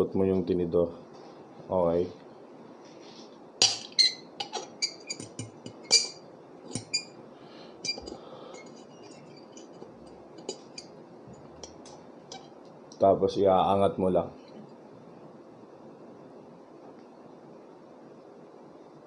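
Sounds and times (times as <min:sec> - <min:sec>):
fork clinking on ceramic plate: 0:03.6 - 0:07.1, 0:07.8 - 0:12.6.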